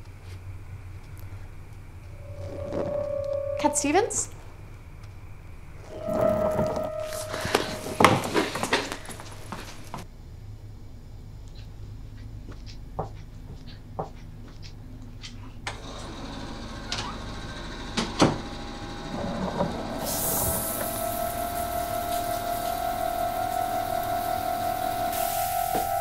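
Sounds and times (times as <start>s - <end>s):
low sustained drone: 1.2s - 10.0s, 18.6s - 26.0s
footsteps on hard floor: 5.9s - 10.0s
water running: 19.1s - 26.0s.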